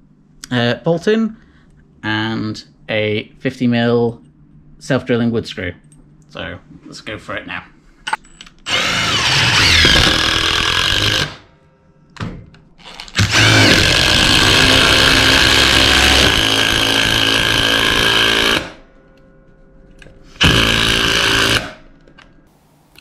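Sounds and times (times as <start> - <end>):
impact drivers hammering: 8.7 - 11.4, 20.4 - 21.8.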